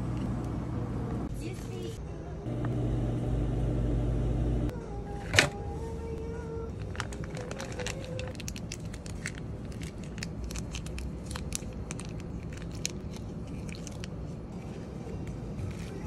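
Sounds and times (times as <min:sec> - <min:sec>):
low background hum: 0:00.0 - 0:16.0
plastic packaging crinkling: 0:06.8 - 0:14.2.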